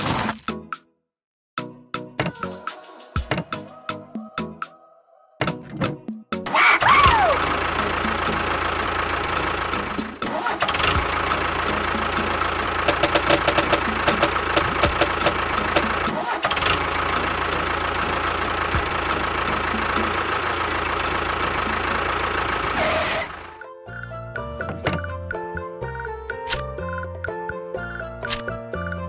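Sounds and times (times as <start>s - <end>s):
motor running: 7.1s - 23.6s
rapid clicks or rattles: 12.9s - 16.0s.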